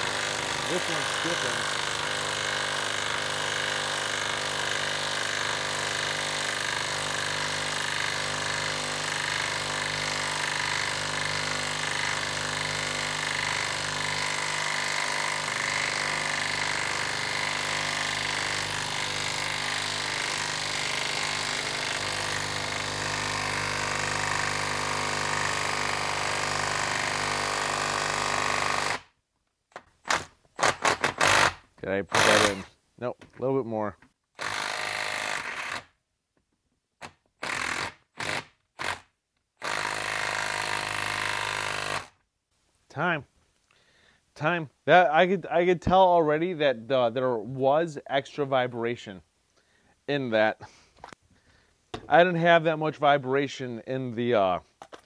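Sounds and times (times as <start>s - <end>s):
impact wrench hammering: 0.0s - 29.1s, 29.8s - 32.7s.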